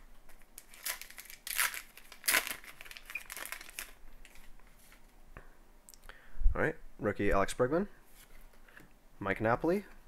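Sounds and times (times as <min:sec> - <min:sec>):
wrapper crinkling: 0:00.6 - 0:05.1.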